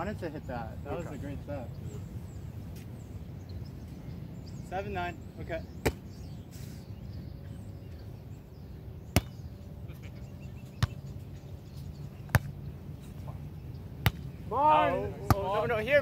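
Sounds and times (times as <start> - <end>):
hands slapping volleyball: 14.0 - 14.2.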